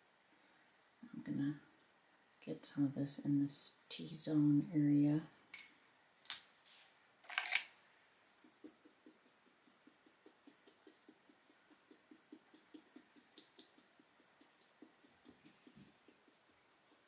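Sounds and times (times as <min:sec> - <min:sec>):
paint applicator dabbing: 0:08.2 - 0:17.0.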